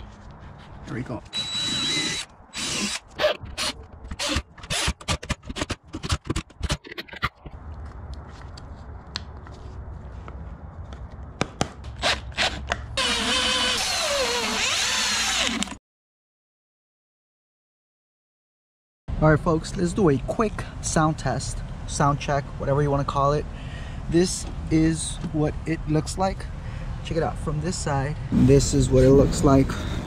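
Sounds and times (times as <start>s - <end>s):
power drill-driver driving screws: 1.3s - 6.8s, 12.0s - 15.8s
sharp clicks and scrapes: 2.9s - 9.3s.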